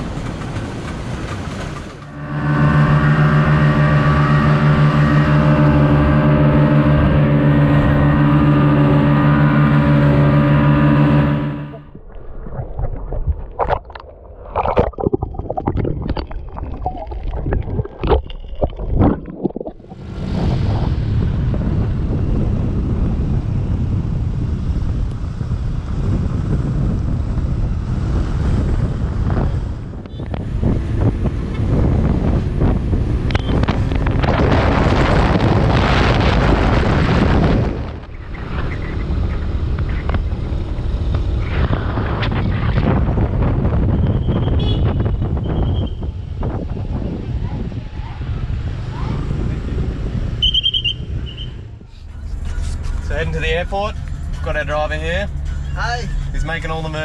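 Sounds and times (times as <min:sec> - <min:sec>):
wind rushing over microphone: 0:11.8 - 0:53.8
underwater clicks and knocks: 0:11.9 - 0:20.0.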